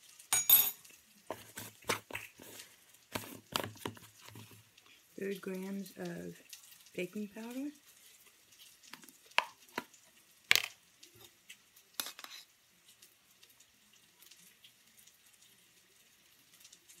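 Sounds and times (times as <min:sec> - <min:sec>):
spoon scraping in a can: 0:12.0 - 0:12.5.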